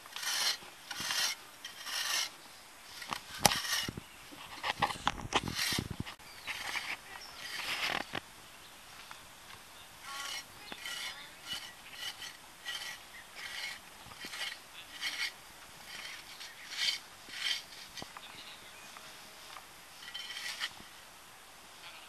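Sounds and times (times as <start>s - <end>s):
hand tool scraping soil: 0.0s - 8.2s, 9.5s - 18.4s, 19.0s - 21.0s.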